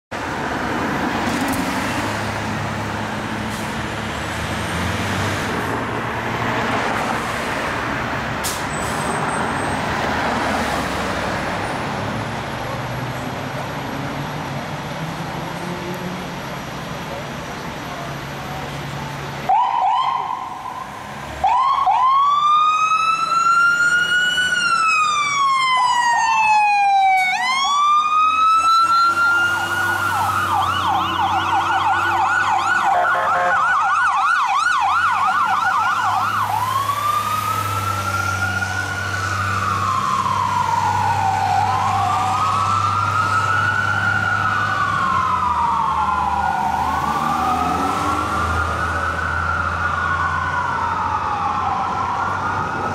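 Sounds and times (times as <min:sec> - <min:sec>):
fire truck siren: 0:18.6 - 0:52.9.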